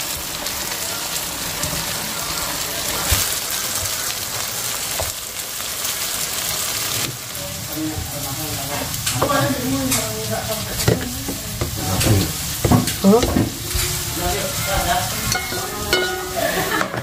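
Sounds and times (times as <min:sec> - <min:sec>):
wok sizzling: 0:00.0 - 0:17.0
metal spatula scraping and clinking: 0:11.8 - 0:17.0.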